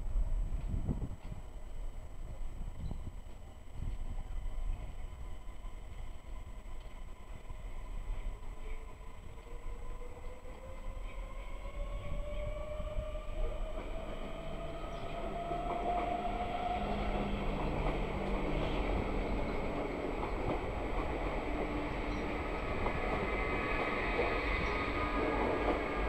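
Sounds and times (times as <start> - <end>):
electric train whine: 0.0 - 26.0
wheels rumbling on rail: 0.0 - 26.0
rail clicks: 13.4 - 26.0.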